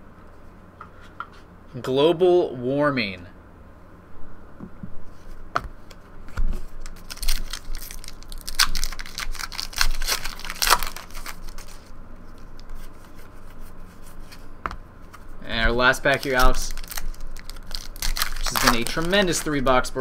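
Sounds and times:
wrapper crackling: 6.7 - 12.7, 15.9 - 19.7
cards clicking: 16.0 - 19.6.

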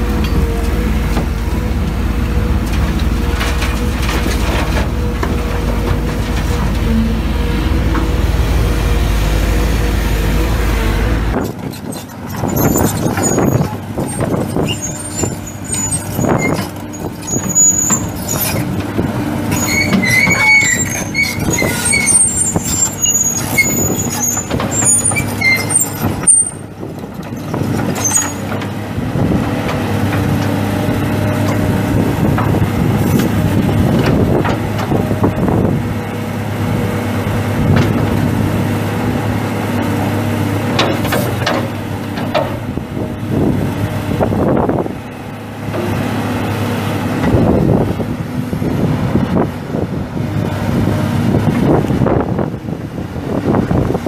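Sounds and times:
excavator diesel engine running: 0.0 - 54.0
high-pitched metallic squeaks: 11.4 - 18.7, 19.5 - 26.7, 28.0 - 28.5.

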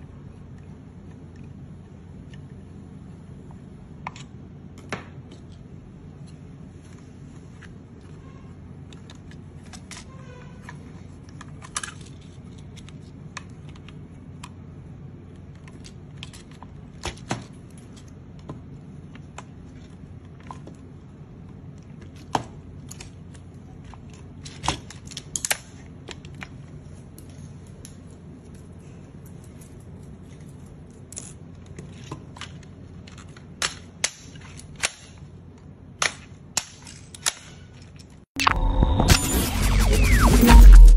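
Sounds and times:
plastic parts clicking: 8.9 - 14.6, 30.4 - 38.2
steady low hum: 38.4 - 40.9.

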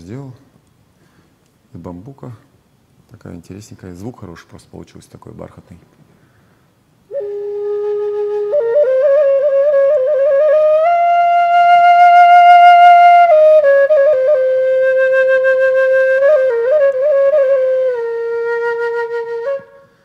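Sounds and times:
wooden flute melody: 7.1 - 20.0.

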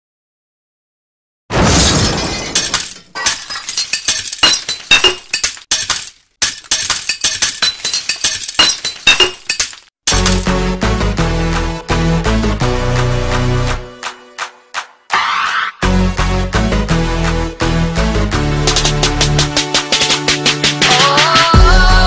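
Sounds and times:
glass shattering: 1.8 - 10.5
glass shards tinkling: 2.6 - 10.5
music: 10.1 - 22.0.

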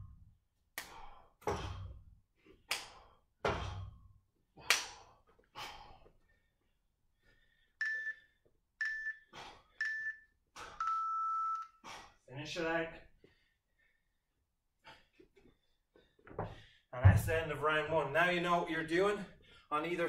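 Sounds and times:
hands slapping a steel bar: 0.7 - 1.0, 2.6 - 3.6, 4.6 - 5.1
timer countdown beeps: 7.8 - 11.8.

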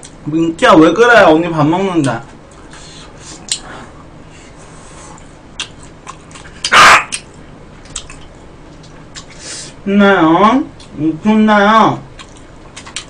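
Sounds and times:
dog barking: 6.7 - 7.2.

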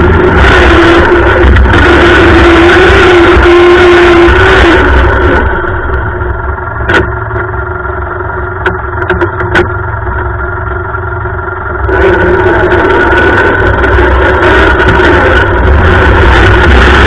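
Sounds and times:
lawn tractor engine running: 0.0 - 17.0
sharp knocks: 6.8 - 7.5.

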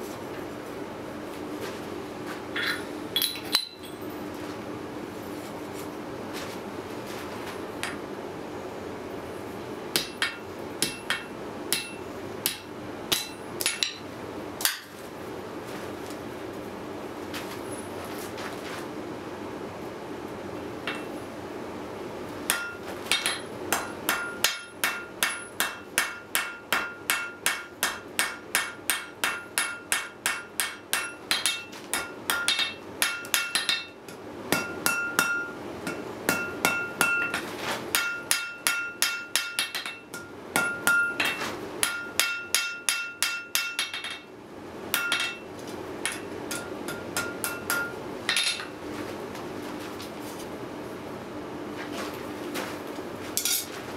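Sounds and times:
hammer striking steel on anvil: 9.9 - 14.0, 22.5 - 44.3, 44.9 - 45.4, 46.0 - 48.7.

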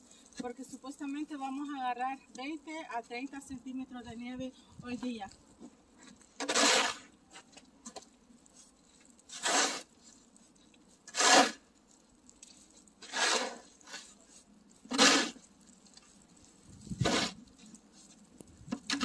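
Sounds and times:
snow shovel scraping asphalt: 6.4 - 7.1, 9.3 - 10.0, 11.1 - 11.6, 13.0 - 14.2, 14.9 - 15.4, 17.0 - 17.4.

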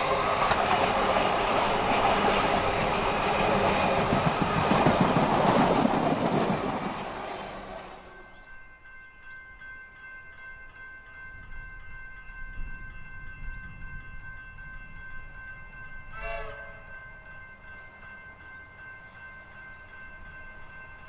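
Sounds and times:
train wheels rumbling on rails: 0.0 - 8.4.

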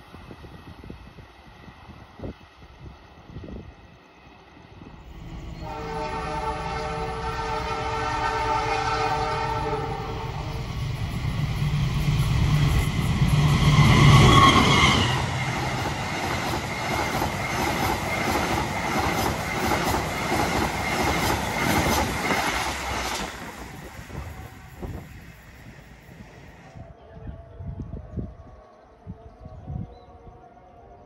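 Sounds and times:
train horn: 5.0 - 10.8, 13.6 - 15.4
train wheels clickety-clack: 11.0 - 25.8.

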